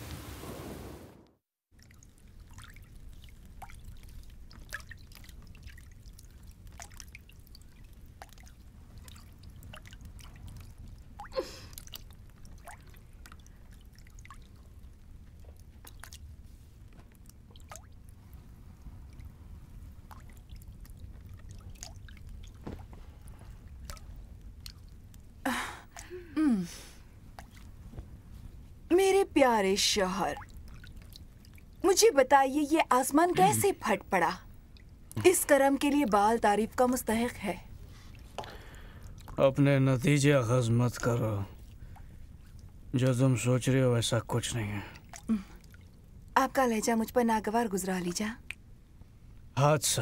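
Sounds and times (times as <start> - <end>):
water dripping and trickling: 1.7 - 26.1, 27.2 - 48.7
water splashing: 1.8 - 26.1, 27.3 - 27.9, 29.5 - 39.4.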